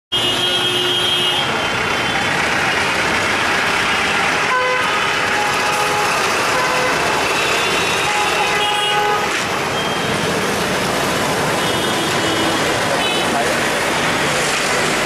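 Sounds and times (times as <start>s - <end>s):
vehicle horns tooting: 0.1s - 2.2s, 3.9s - 10.3s, 11.4s - 13.5s
road noise: 0.1s - 15.0s
trucks and bus passing: 0.2s - 15.0s.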